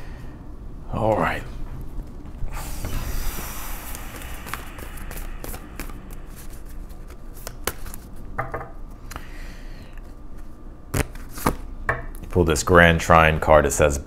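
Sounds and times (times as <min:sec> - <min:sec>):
cards being shuffled: 0:03.8 - 0:08.2, 0:10.4 - 0:11.6.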